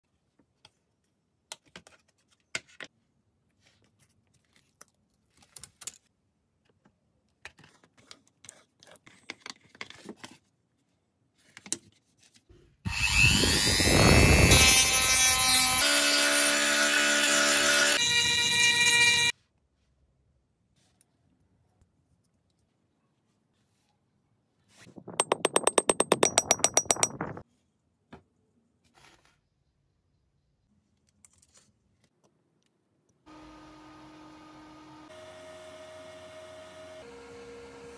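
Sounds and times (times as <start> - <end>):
rotary tool grinding whine: 12.9 - 19.3.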